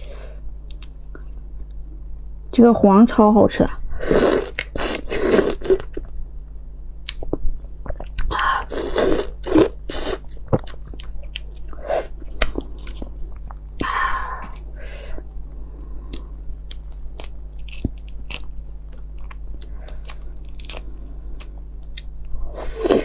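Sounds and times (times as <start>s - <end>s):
chewing: 10.3s - 13.7s, 16.1s - 22.1s
crunchy bites on shell: 16.6s - 22.1s.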